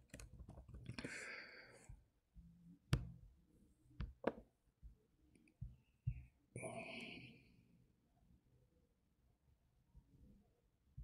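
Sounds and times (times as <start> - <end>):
soft breath out: 1.0 - 2.0.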